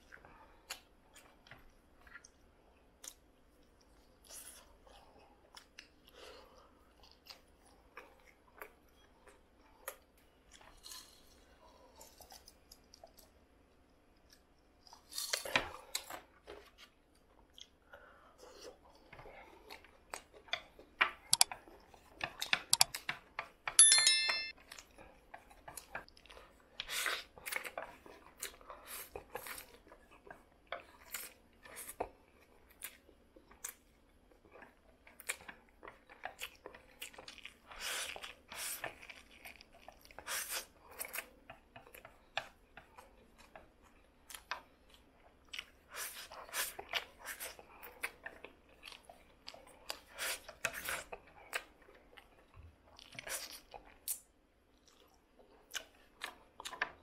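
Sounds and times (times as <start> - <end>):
chopsticks clicking on plate: 22.5 - 23.0
ringing clink: 23.8 - 24.5
slurping and chewing: 24.6 - 57.0.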